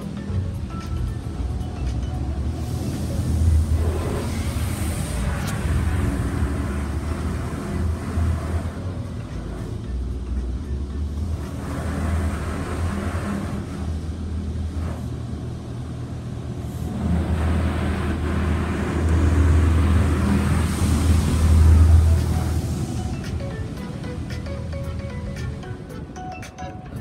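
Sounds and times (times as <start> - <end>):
high-pressure water spray on car: 2.6 - 9.7, 11.2 - 15.6, 16.6 - 24.3.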